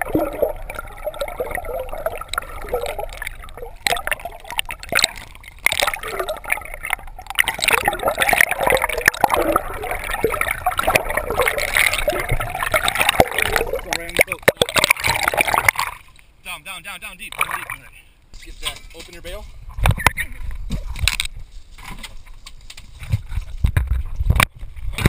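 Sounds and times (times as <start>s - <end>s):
water gurgling underwater: 0.0s - 16.1s.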